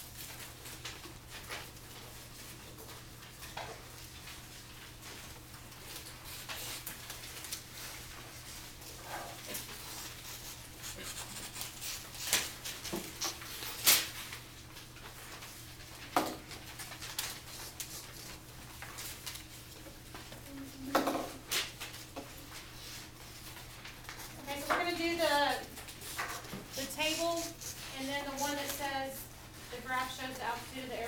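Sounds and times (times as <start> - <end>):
paper rustling: 9.5 - 31.0.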